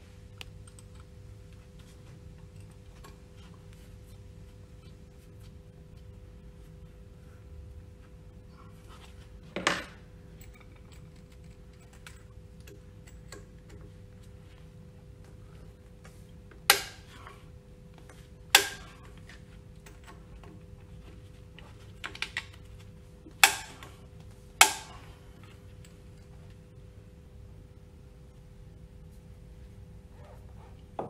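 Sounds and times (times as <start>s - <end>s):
faint steady hum: 0.0s - 31.0s
tools clicking and knocking on metal: 9.6s - 14.0s, 16.6s - 17.4s, 18.5s - 20.6s, 23.4s - 24.0s, 24.6s - 25.1s.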